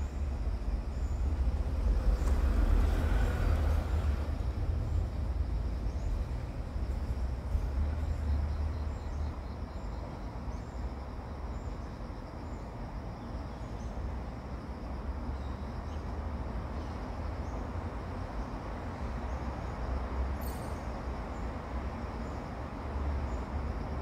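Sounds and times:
steady low rumble: 0:00.0 - 0:10.0.

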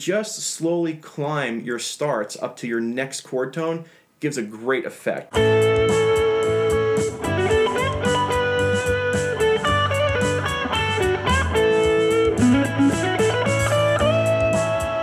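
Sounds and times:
backing track: 0:05.3 - 0:15.0
electric guitar blues-rock lead: 0:05.4 - 0:15.0.

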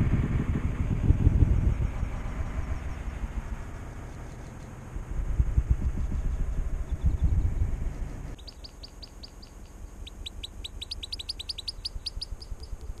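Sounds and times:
low rumbling noise: 0:00.0 - 0:08.4
small birds chirping: 0:02.6 - 0:04.8, 0:06.0 - 0:13.0.

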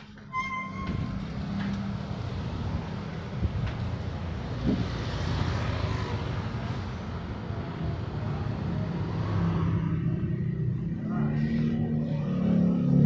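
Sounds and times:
traffic rush: 0:00.0 - 0:13.0
vehicle engines rumbling: 0:00.0 - 0:13.0.

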